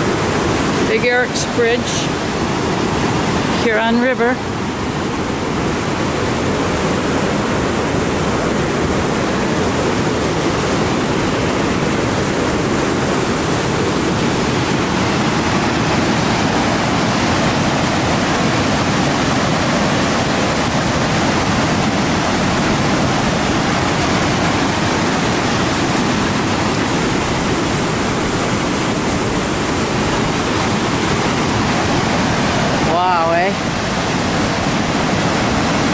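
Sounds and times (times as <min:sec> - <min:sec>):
river rushing through rapids: 0:00.0 - 0:35.9.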